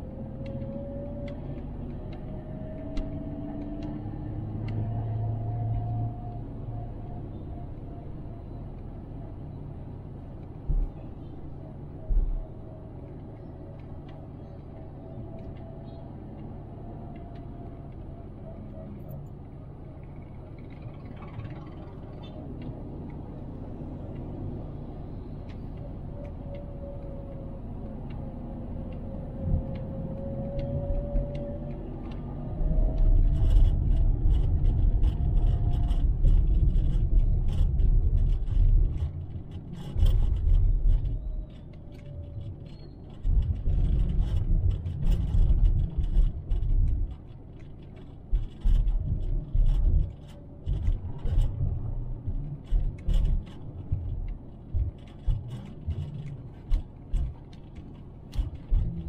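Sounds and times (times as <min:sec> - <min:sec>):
car driving rumble: 0:00.0 - 0:59.0
light clicks and rattles: 0:25.4 - 0:59.0.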